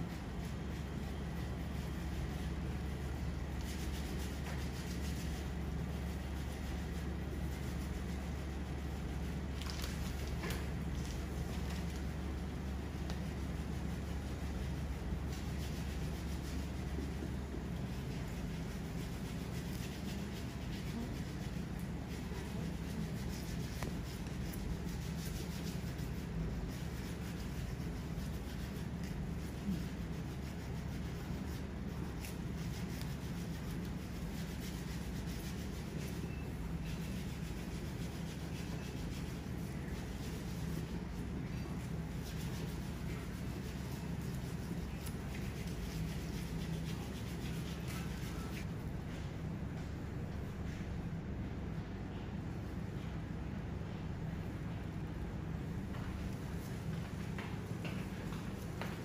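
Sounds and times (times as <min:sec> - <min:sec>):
steady low hum: 0:00.0 - 0:59.0.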